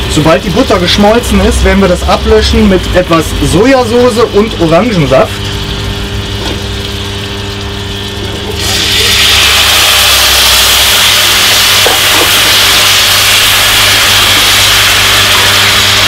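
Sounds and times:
loud steam hiss from pan: 8.6s - 16.0s.

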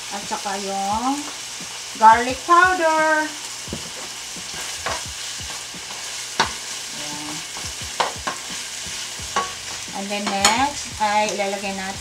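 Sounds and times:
food sizzling in a frying pan: 0.0s - 12.0s
spatula tapping a pan: 3.7s - 6.7s, 7.5s - 11.5s.

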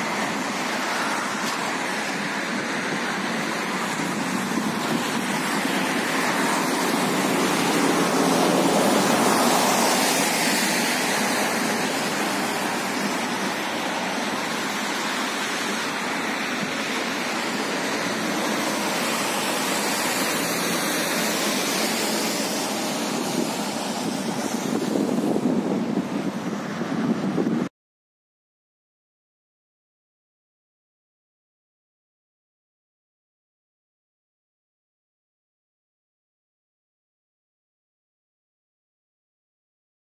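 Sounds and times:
wind buffeting microphone: 0.1s - 27.7s.

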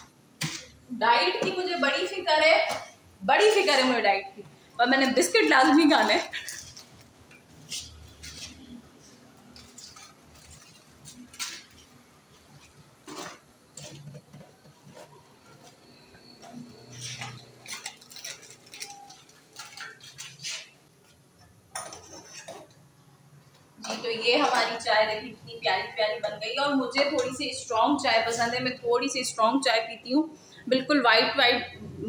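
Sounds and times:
dishes and utensils clinking: 21.4s - 22.7s.

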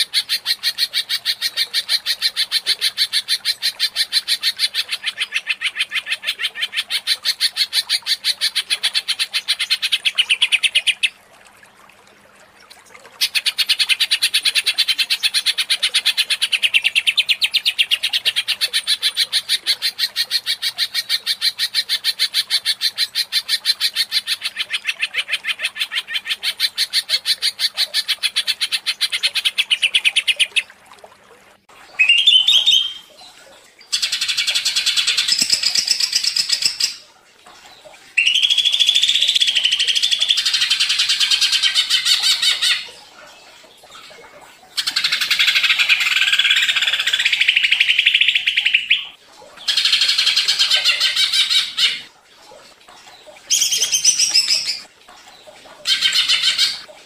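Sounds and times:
bird chattering song: 32.0s - 33.1s, 34.0s - 37.0s, 38.2s - 42.9s, 44.8s - 52.0s, 53.5s - 54.8s.

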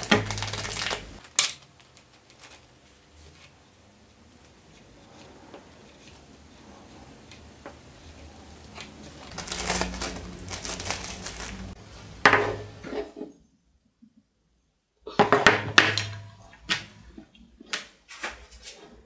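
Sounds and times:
plastic bag crinkling: 0.0s - 3.5s, 8.7s - 11.8s
steel washers clinking: 9.3s - 10.6s.

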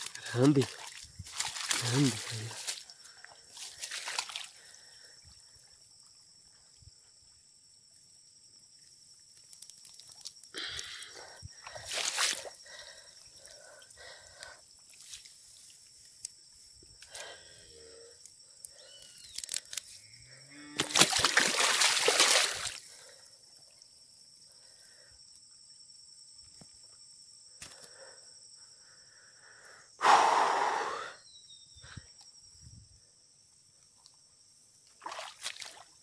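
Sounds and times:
splash and grass rustle: 0.0s - 4.8s, 11.7s - 12.8s, 20.8s - 22.9s, 35.0s - 36.0s
water sloshing and trickling: 0.0s - 5.1s, 11.2s - 15.9s, 20.8s - 23.1s, 34.8s - 36.0s.

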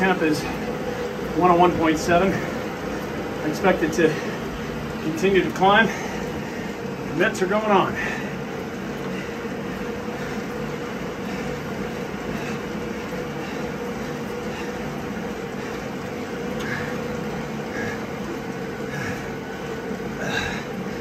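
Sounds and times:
steady machine hum: 0.0s - 21.0s
man breathing hard: 5.8s - 7.1s, 7.9s - 21.0s.

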